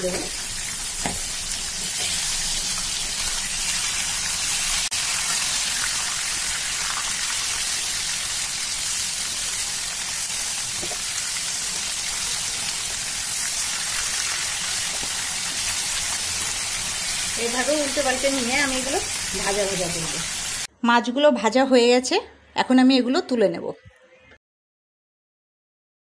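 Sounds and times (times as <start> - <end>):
fish sizzling in hot oil: 0.0 - 20.7.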